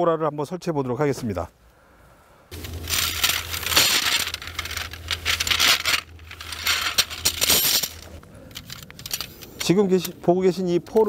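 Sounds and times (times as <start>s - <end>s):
rustling: 2.5s - 10.1s
metal tent poles clinking: 2.5s - 11.0s.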